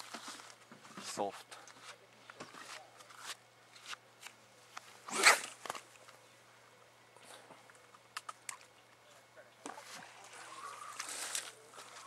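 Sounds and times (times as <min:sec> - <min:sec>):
line zipping off reel: 0:05.0 - 0:05.6.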